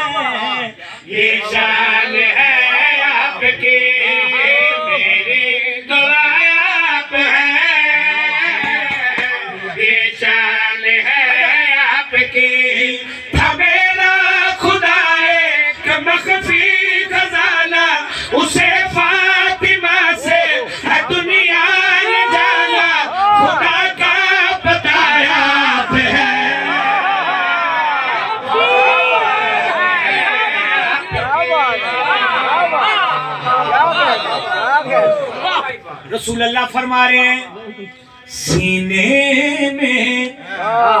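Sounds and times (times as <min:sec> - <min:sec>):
men singing devotional song: 0:00.0 - 0:27.0, 0:36.1 - 0:41.0.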